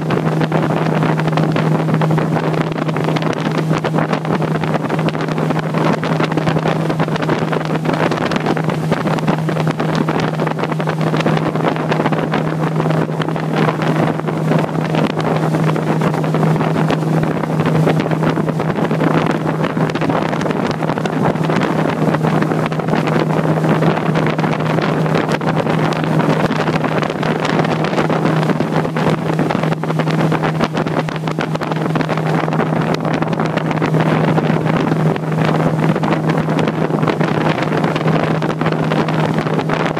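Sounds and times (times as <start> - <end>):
motorboat engine humming: 0.0 - 39.9
wind noise on microphone: 0.0 - 39.9.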